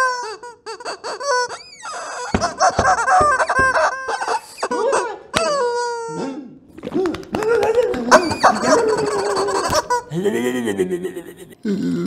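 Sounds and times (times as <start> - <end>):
cartoon warbling squeaks: 0.0 - 6.2, 8.1 - 10.2.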